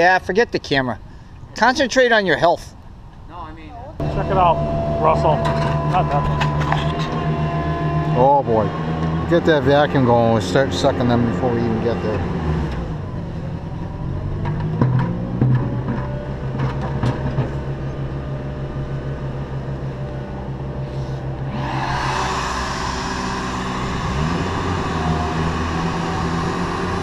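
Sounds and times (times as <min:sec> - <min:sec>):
motor running: 0:04.0 - 0:11.3, 0:20.9 - 0:27.0
vacuum rush of air: 0:20.8 - 0:27.0.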